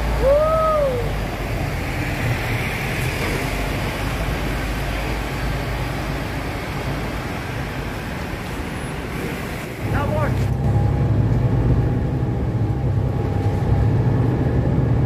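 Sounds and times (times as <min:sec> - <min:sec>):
bus engine rumble: 0:00.0 - 0:15.0
road noise: 0:00.0 - 0:15.0.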